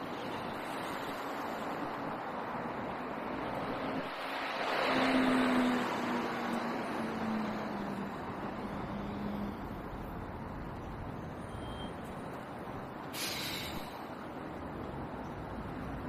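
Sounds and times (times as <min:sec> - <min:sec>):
road traffic rumble: 0:00.0 - 0:16.0
short hiss: 0:13.1 - 0:14.0.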